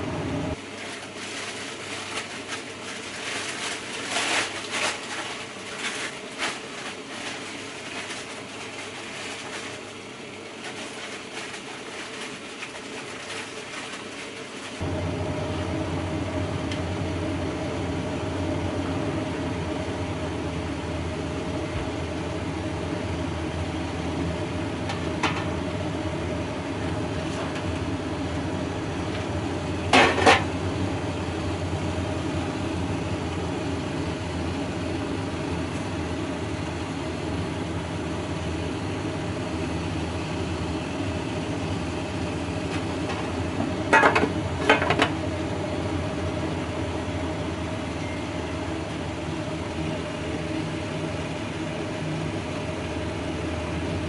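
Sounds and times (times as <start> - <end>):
steady background hum: 0.0 - 54.0.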